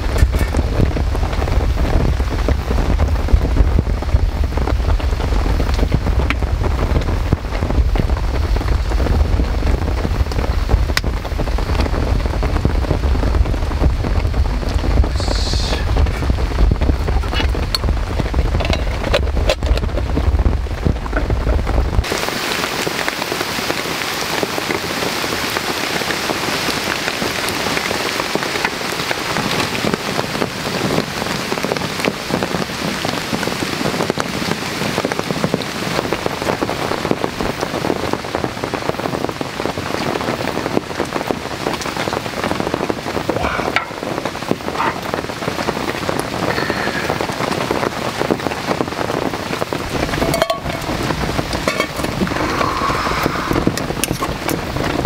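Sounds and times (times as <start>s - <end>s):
low rumble: 0.0s - 22.1s, 49.6s - 55.0s
heavy rain hissing: 0.0s - 55.0s.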